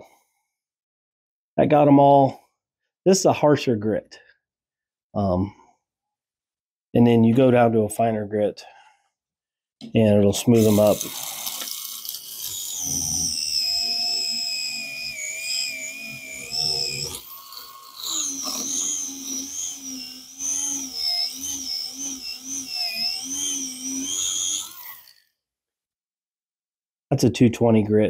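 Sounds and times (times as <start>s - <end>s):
small electric motor whining: 10.5s - 25.4s.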